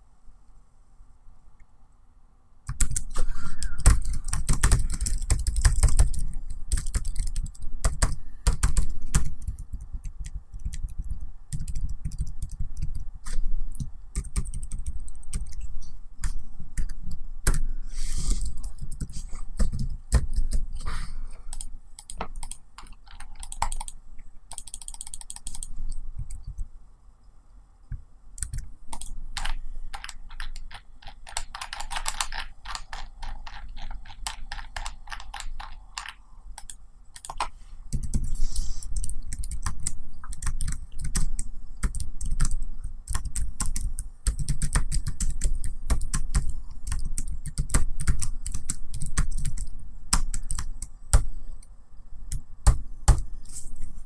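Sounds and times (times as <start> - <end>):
laptop keyboard typing: 2.7 - 20.9, 21.5 - 26.6, 28.4 - 51.4, 52.3 - 53.4.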